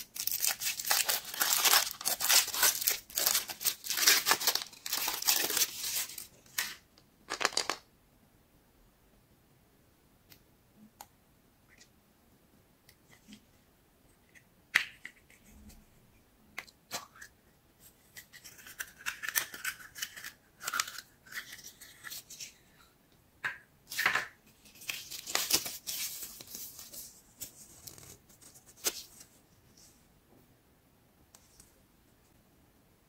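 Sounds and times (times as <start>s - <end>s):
wrapping crinkling and rustling: 0.0s - 7.8s.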